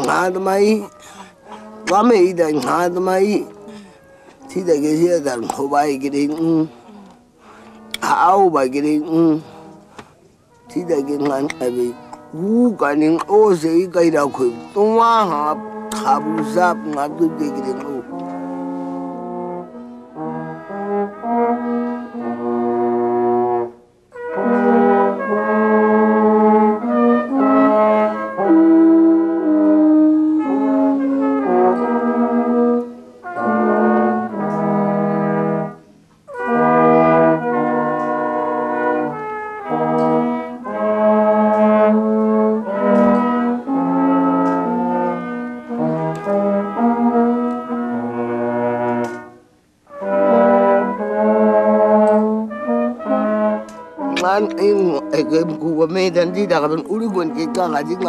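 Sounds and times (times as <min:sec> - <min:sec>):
brass band playing chords: 0:00.0 - 0:10.1, 0:10.7 - 0:58.0.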